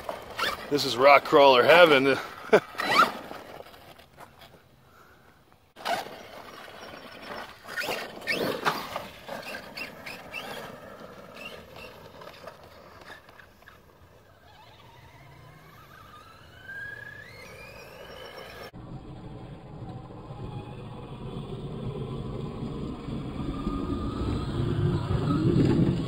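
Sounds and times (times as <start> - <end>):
electric motor whining: 5.8 - 18.7.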